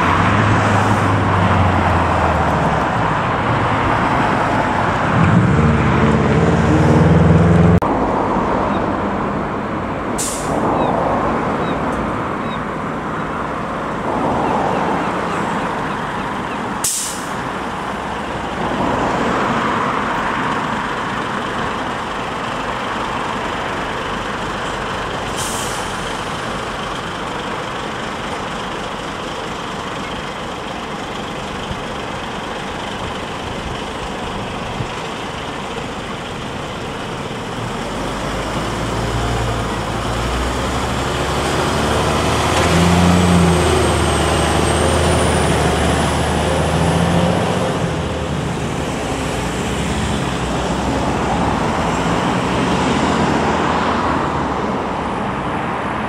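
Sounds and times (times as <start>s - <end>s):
road traffic: 0.0s - 56.0s
air brake hisses: 10.2s - 10.6s, 16.8s - 17.4s, 25.3s - 26.1s
fire engine diesel running: 12.4s - 18.8s, 19.8s - 38.8s.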